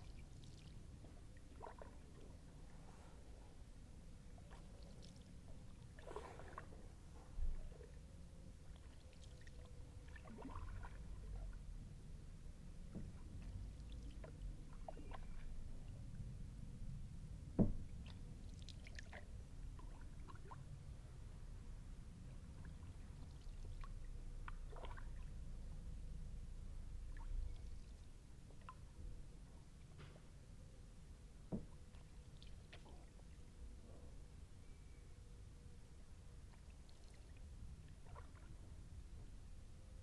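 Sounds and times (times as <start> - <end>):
paddle splashing in water: 6.0 - 6.8, 9.2 - 11.1, 24.7 - 25.1.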